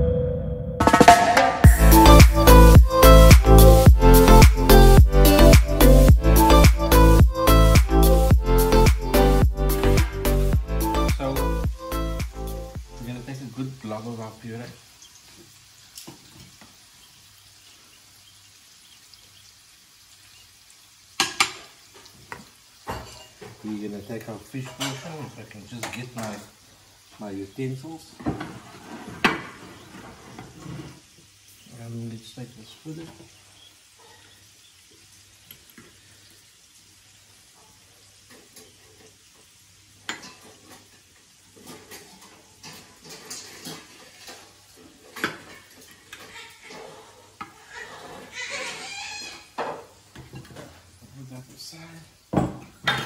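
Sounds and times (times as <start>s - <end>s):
faint steady hiss: 3.7s - 53.0s
cutlery scraping ceramic dishes: 41.6s - 44.5s.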